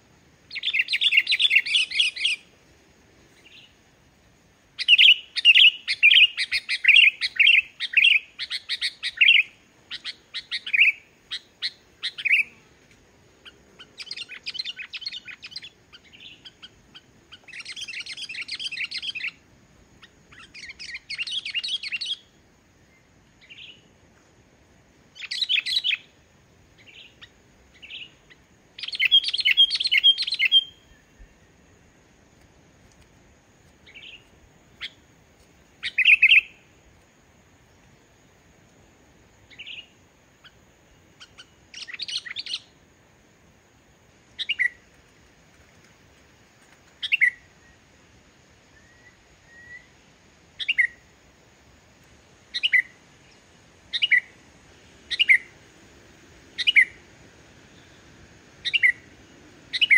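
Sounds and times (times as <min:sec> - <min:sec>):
bulbul singing: 0:00.5 - 0:02.5, 0:04.8 - 0:12.6, 0:20.0 - 0:22.4, 0:26.8 - 0:31.5, 0:35.8 - 0:36.6, 0:52.5 - 0:54.4, 0:55.0 - 0:55.6, 0:56.5 - 0:57.0, 0:57.7 - 0:59.9.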